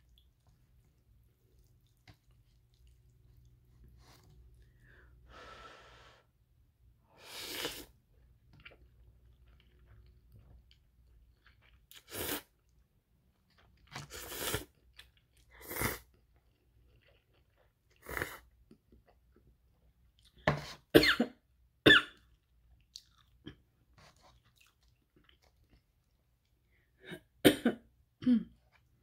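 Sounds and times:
quiet chewing: 0.0 - 4.9, 8.1 - 12.0, 12.6 - 20.4, 22.2 - 26.9
person slurping noodles: 7.2 - 8.0, 11.9 - 12.5, 14.0 - 14.7, 15.6 - 16.1, 17.9 - 18.5.

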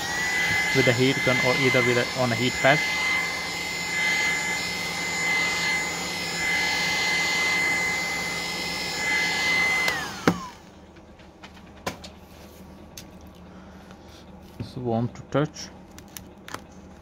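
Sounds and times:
heat gun blower whine: 0.0 - 11.2.

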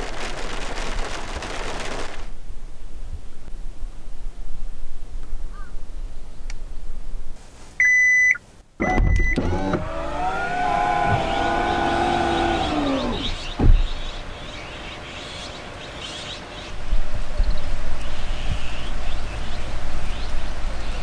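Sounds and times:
electronic warning beeps: 7.8 - 9.4
tailgate motor whining: 8.8 - 15.0.

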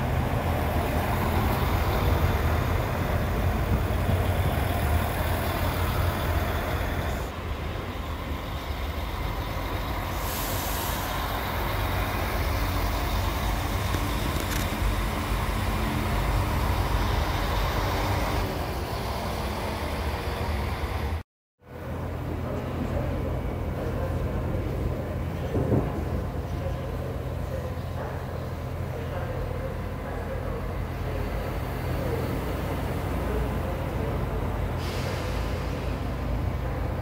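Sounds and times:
diesel train engine rumbling: 0.0 - 37.0
air hiss: 10.1 - 11.7.

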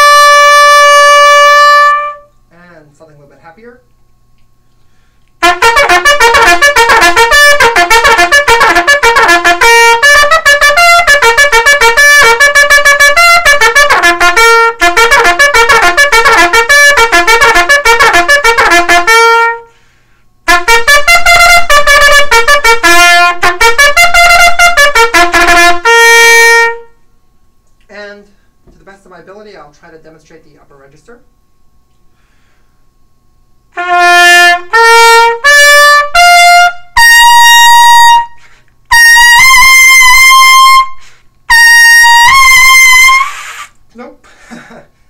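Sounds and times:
trumpet playing short tongued notes: 0.0 - 2.4, 5.4 - 19.8, 20.5 - 27.0, 33.7 - 43.8.

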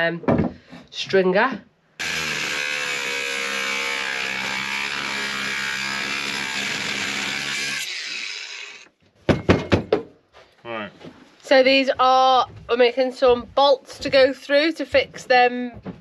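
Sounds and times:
angle grinder cutting metal: 2.0 - 8.9
sharp knocks: 9.3 - 10.1, 12.0 - 16.0.

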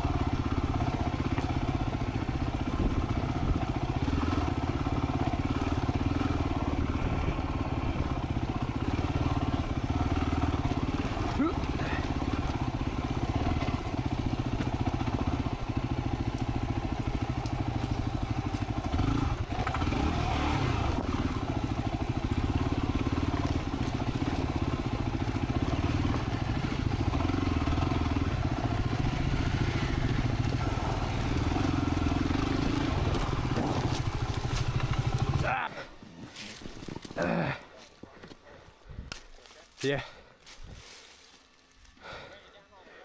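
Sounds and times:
motorcycle engine running: 0.0 - 42.4
bike clicks and rattles over stones: 23.2 - 24.6, 32.6 - 38.4.

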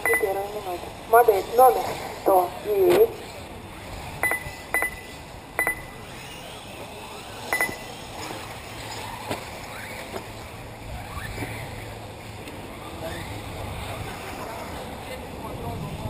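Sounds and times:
electronic double beeps: 0.0 - 0.5, 4.2 - 6.0, 7.5 - 7.9
rc car motors whining: 0.0 - 16.0.

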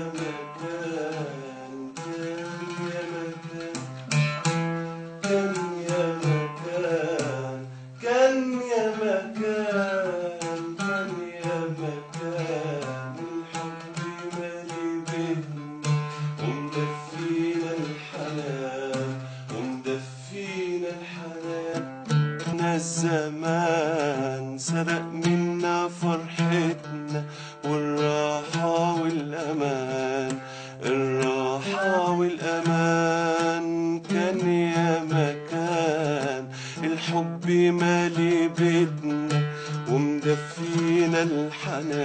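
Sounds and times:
oud plucked: 0.0 - 42.0
person singing slow melody: 5.3 - 21.8.

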